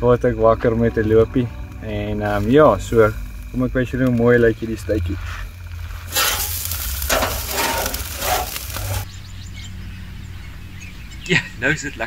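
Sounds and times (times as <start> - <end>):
meat sizzling over coals: 0.0 - 9.6
low hum: 0.0 - 12.0.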